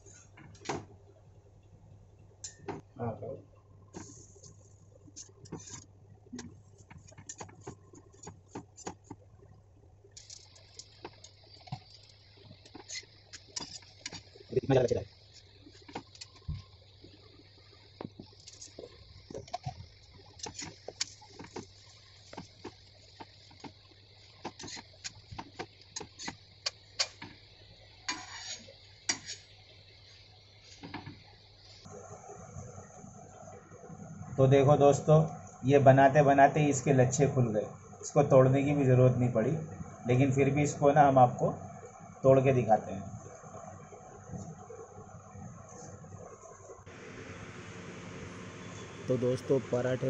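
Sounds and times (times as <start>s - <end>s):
spatula scraping: 28.1s - 29.5s.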